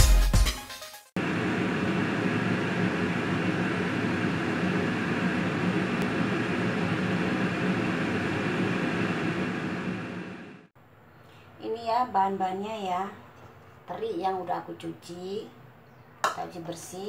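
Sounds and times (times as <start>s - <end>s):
steady rushing noise: 1.2s - 10.7s.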